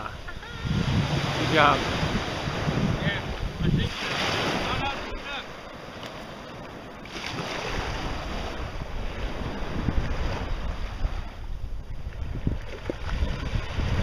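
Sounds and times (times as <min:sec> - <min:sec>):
small waves and shallow surf: 0:00.0 - 0:14.0
wind blowing across microphone: 0:00.0 - 0:14.0.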